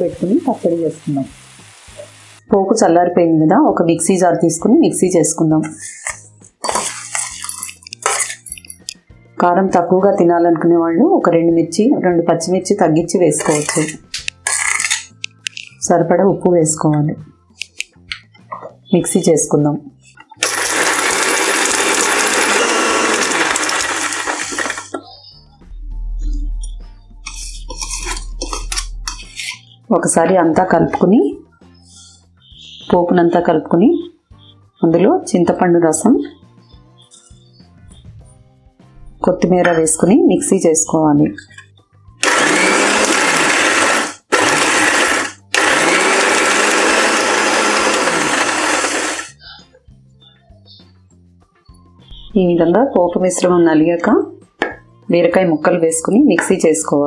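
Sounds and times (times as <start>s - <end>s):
mixer grinder running: 20.4s - 25.0s, 42.2s - 49.4s.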